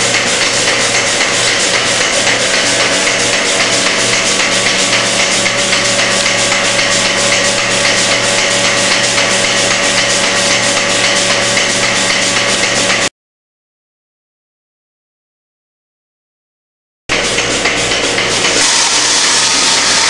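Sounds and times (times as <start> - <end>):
vacuum system hiss: 0.0 - 10.6, 18.1 - 20.0
pulsators clicking rapidly: 0.0 - 13.1, 17.1 - 20.0.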